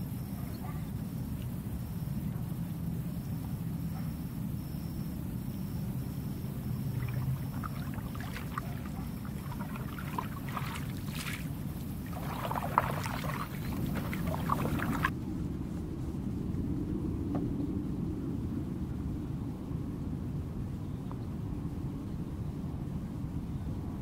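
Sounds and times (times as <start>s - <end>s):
steady low rumble: 1.0s - 20.8s
paddle splashing in water: 6.8s - 15.1s.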